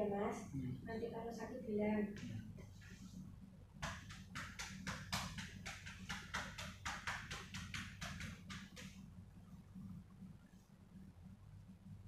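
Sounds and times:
hands patting on back: 3.8 - 9.1.

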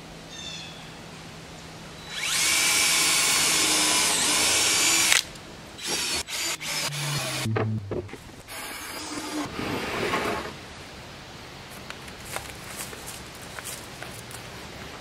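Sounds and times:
cordless drill driving screw into wood: 2.1 - 7.5.

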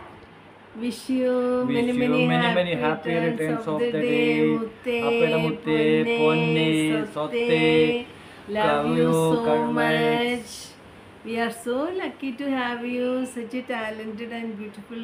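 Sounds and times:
person singing long notes: 1.7 - 10.4.

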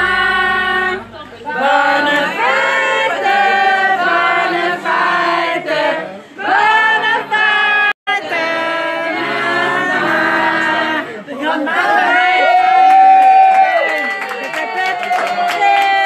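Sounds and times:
group of people singing: 0.0 - 12.3.

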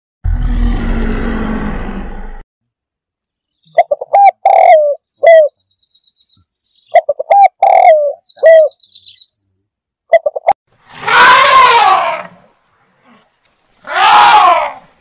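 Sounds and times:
dove cooing: 3.8 - 5.5, 6.9 - 8.8.

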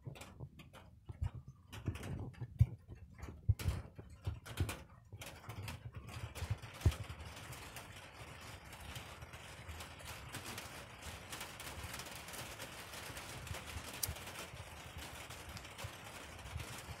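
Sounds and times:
raindrops tapping: 0.0 - 17.0
rain falling: 6.0 - 17.0.

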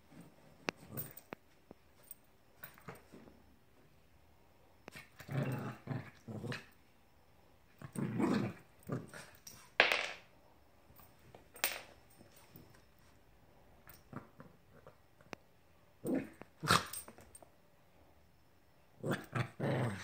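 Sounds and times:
small dog growling: 4.9 - 6.7, 7.8 - 9.4, 16.0 - 17.0, 19.0 - 20.0.

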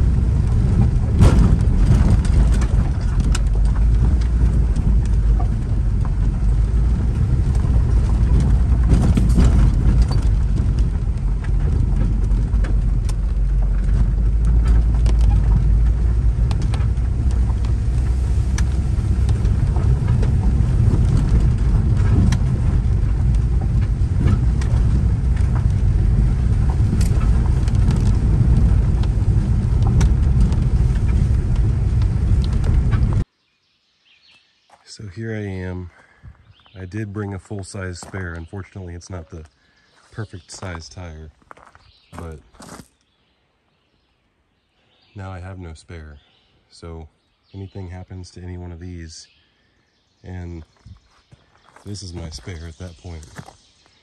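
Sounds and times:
stones clicking under wheels: 0.0 - 33.3
tyre and suspension rumble: 0.0 - 33.3, 34.9 - 43.0, 49.9 - 54.0.

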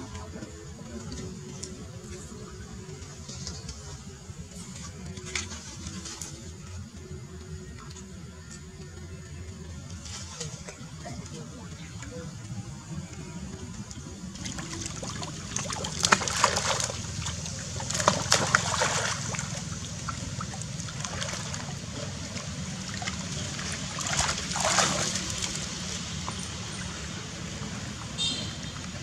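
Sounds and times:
low water noise: 0.0 - 29.0
monkeys splashing in muddy water: 14.4 - 29.0.

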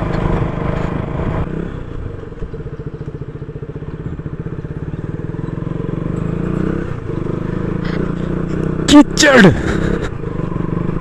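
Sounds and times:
tyres on rough gravel: 0.0 - 1.4, 5.3 - 11.0
motorcycle engine at low revs: 0.0 - 11.0.

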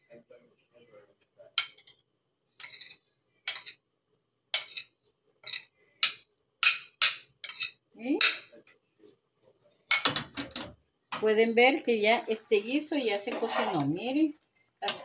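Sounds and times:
kitchen utensils and dishes clicking: 1.6 - 2.0, 2.6 - 3.8, 4.5 - 8.5, 9.9 - 10.8.

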